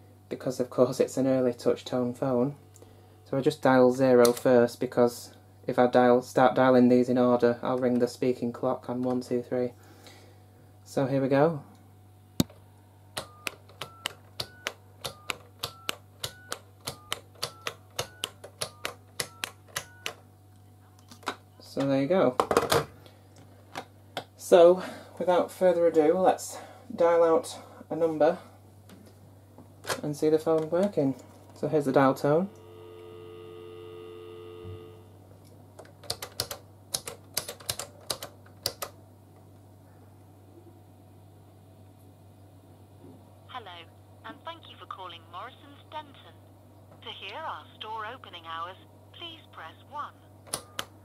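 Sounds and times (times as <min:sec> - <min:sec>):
telephone dial tone: 0:32.6 - 0:35.1.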